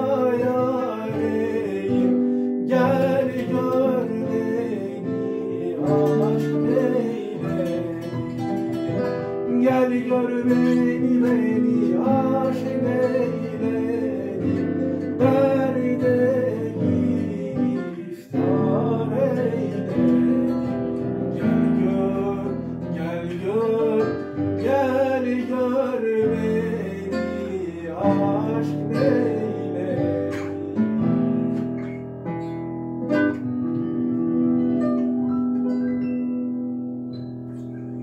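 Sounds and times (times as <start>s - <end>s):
classical guitar: 0.0s - 38.0s
piano: 0.0s - 38.0s.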